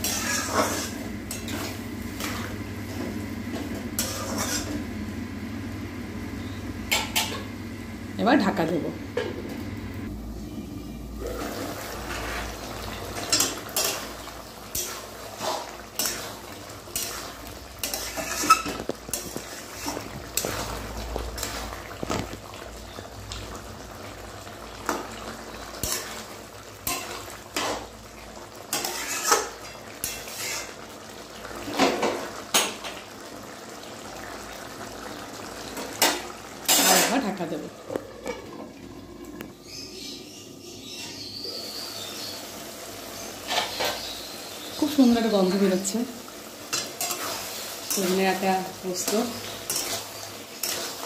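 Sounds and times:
spatula scraping metal pan: 0.0 - 2.4, 4.0 - 4.8, 16.9 - 20.6, 28.7 - 30.8.

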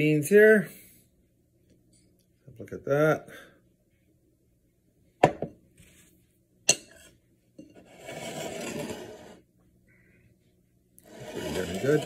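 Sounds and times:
spoon scraping through beans: 7.8 - 9.4, 11.0 - 12.0.

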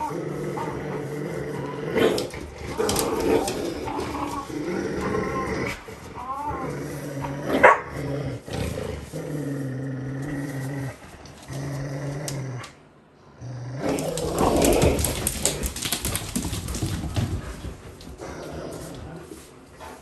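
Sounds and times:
dogs growling: 0.0 - 20.0
claws scrambling on hard floor: 2.0 - 6.8, 13.8 - 19.6.

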